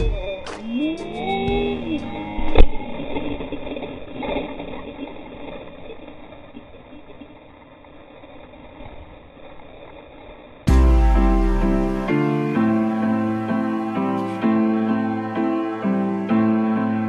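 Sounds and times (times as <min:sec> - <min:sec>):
loud music: 0:10.7 - 0:17.0.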